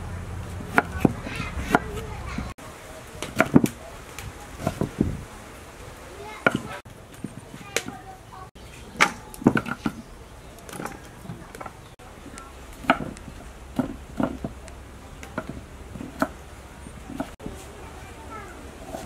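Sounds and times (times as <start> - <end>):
knife chopping on wooden board: 0.7 - 2.0, 3.2 - 3.8, 12.8 - 14.6, 15.3 - 16.4, 17.1 - 17.4.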